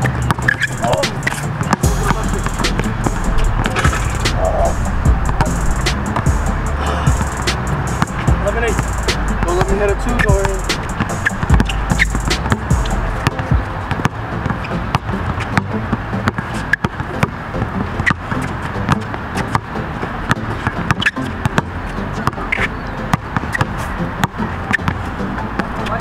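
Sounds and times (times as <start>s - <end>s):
basketball bouncing on hard court: 0.0s - 2.2s, 8.0s - 15.6s
loud steady background noise: 0.0s - 26.0s.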